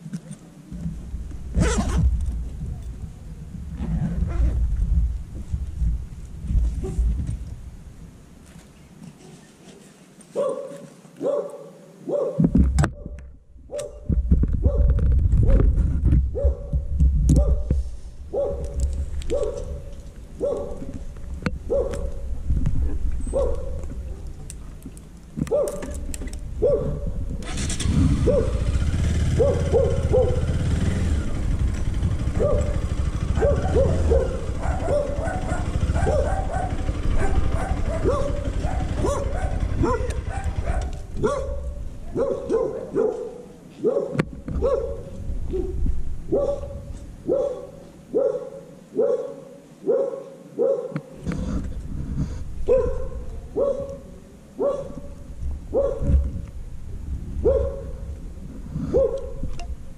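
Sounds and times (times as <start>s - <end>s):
motorcycle engine rumble: 0.0s - 9.9s, 12.4s - 48.2s, 51.0s - 59.9s
dog barking: 10.3s - 12.4s, 13.7s - 15.6s, 16.3s - 16.8s, 17.4s - 17.7s, 18.3s - 20.9s, 21.7s - 22.2s, 23.3s - 24.3s, 25.5s - 25.9s, 26.6s - 27.2s, 28.2s - 28.7s, 29.3s - 30.6s, 32.4s - 51.2s, 52.6s - 56.2s, 57.4s - 58.1s, 58.9s - 59.4s.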